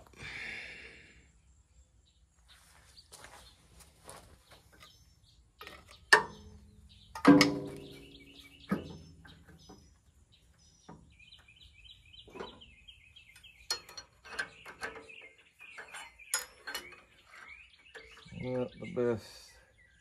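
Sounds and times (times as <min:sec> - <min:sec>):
small bird chirping: 0:01.7 - 0:20.0
metal tool clinking on engine: 0:12.3 - 0:18.4.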